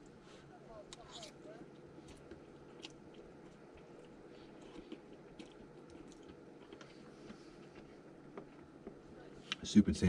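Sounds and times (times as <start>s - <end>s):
faint chewing of noodles: 0.0s - 9.6s.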